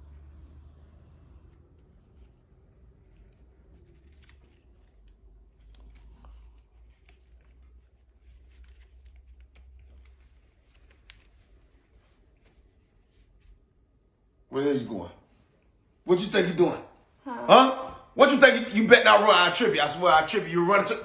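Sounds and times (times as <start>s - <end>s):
banknotes rustling and crinkling: 1.5s - 13.8s.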